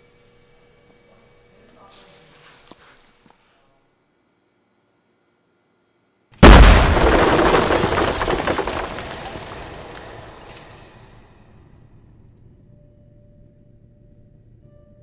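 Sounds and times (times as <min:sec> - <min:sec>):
explosion with low rumble: 0:06.4 - 0:09.2.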